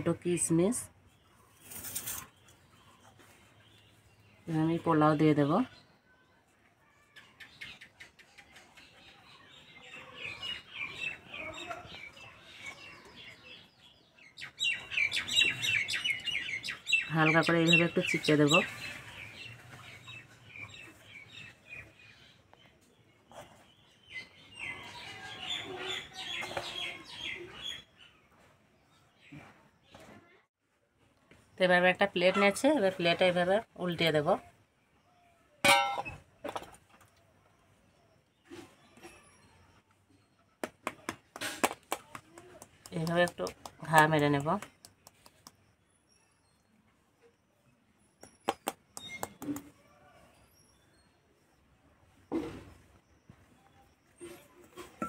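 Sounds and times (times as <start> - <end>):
birds chirping: 6.9 - 30.2.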